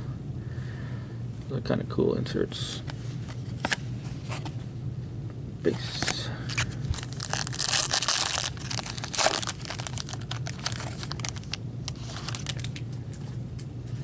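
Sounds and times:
cards sliding out of pack: 0:06.0 - 0:12.9
foil wrapper crinkling and tearing: 0:06.5 - 0:12.8.

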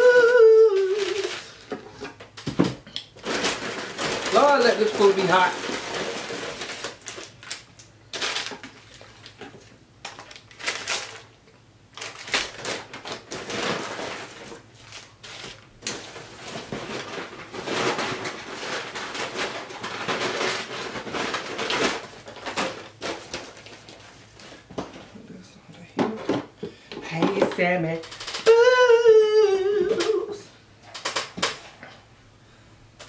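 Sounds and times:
paper wrappers rustling and crinkling: 0:00.0 - 0:25.4.

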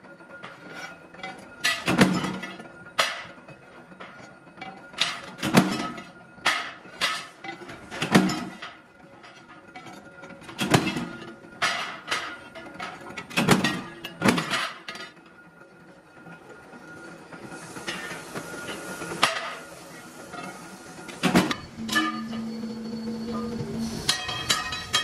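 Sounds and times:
power press clanking strokes: 0:04.0 - 0:08.8, 0:17.5 - 0:25.0
metal plates clinking: 0:21.4 - 0:22.5, 0:23.3 - 0:25.0.

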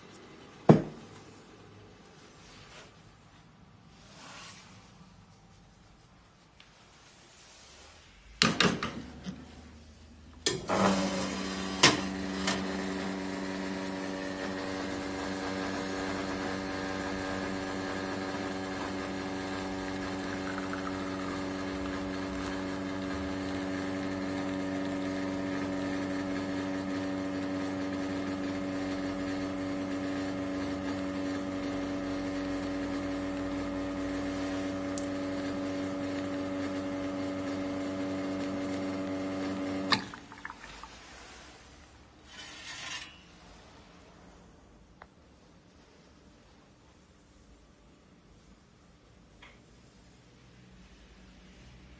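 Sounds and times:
espresso machine pump humming: 0:10.8 - 0:40.5.

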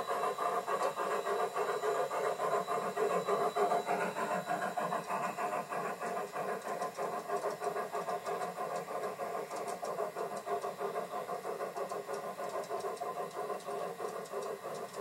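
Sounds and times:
model steam locomotive running: 0:00.0 - 0:15.0.

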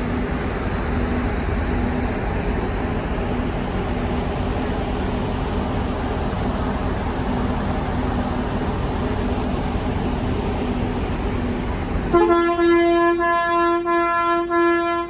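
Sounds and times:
street hum: 0:00.0 - 0:15.0
horn-like tone: 0:12.1 - 0:15.0.

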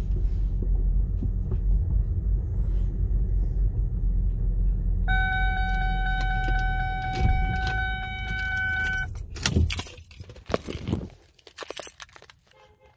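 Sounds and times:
car engine idling: 0:00.0 - 0:09.8
electronic warning tone: 0:05.1 - 0:09.1
keys clicking and jangling: 0:06.2 - 0:12.7.

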